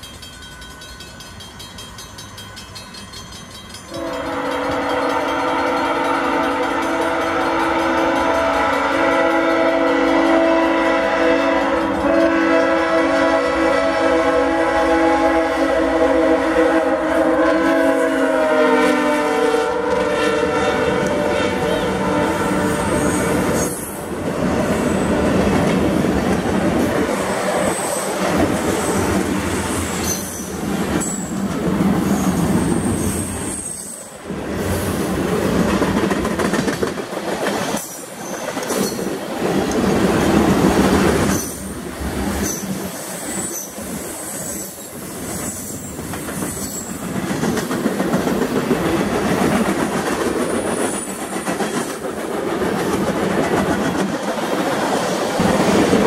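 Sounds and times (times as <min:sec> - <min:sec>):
train wheels rumbling on rails: 0:00.0 - 0:56.0
high-pitched wheel squeals: 0:30.0 - 0:31.3, 0:32.8 - 0:34.1.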